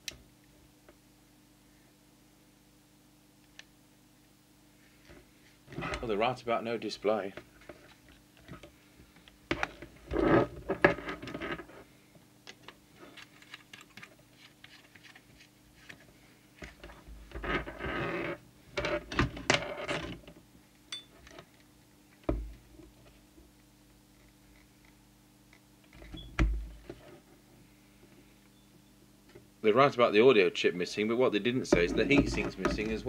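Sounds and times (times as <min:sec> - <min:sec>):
faint steady hum: 0:00.0 - 0:33.0.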